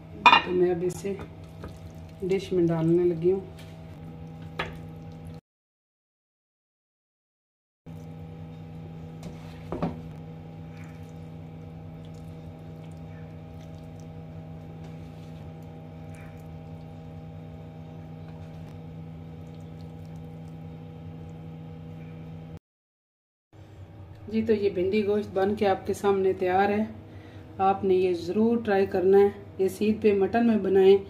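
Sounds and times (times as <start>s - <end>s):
low hum of constant tones: 0.0s - 5.4s, 7.9s - 22.6s, 23.6s - 31.0s.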